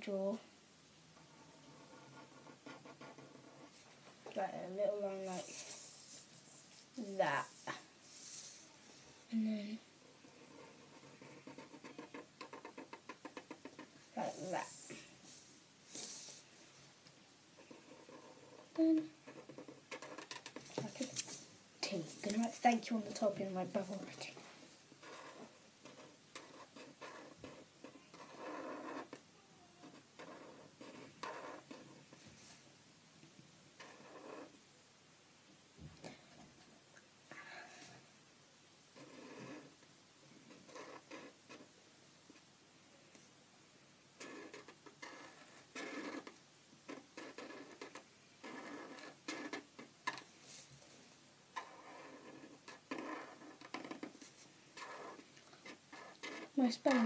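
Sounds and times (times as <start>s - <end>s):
felt-tip pen drawing on paper: 1.2s - 3.8s, 10.2s - 16.4s, 17.6s - 21.4s, 25.0s - 29.2s, 29.8s - 32.6s, 33.8s - 34.6s, 39.0s - 39.8s, 40.5s - 41.7s, 44.2s - 46.3s, 46.9s - 49.9s, 51.6s - 57.0s.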